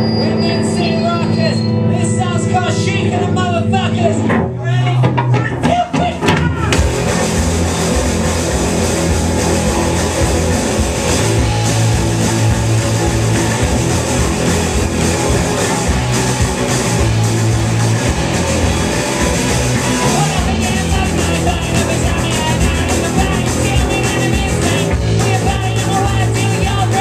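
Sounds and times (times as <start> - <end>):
bass guitar: 0.0 - 27.0
distorted electric guitars: 0.0 - 27.0
drum kit: 0.0 - 27.0.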